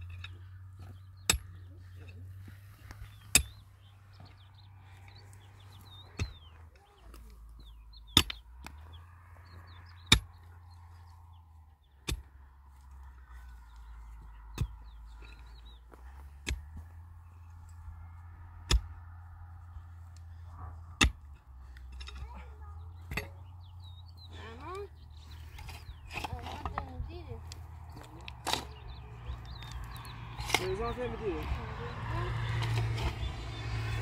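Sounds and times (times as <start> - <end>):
birds chirping: 0.0 - 34.0
pickaxe striking stony soil: 3.3 - 3.6, 18.6 - 18.9.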